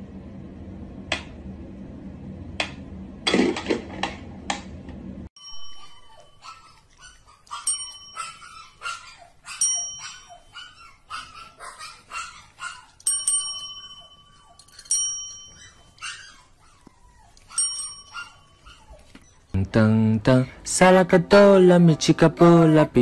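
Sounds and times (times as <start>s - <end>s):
desk call bells dinging: 5.4s - 10.8s, 13.0s - 16.3s, 17.5s - 19.5s.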